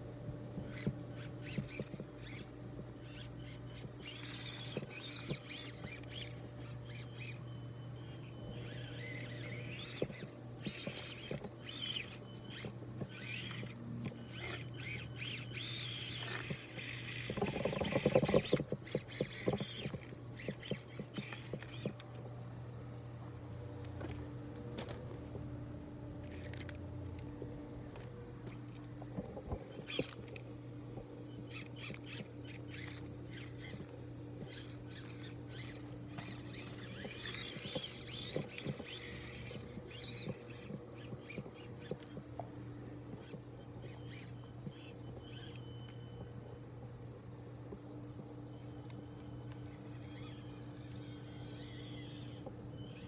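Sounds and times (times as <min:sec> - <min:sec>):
small electric motor and gears whirring: 0:00.0 - 0:53.0
tyres clicking on rocks: 0:08.7 - 0:22.1.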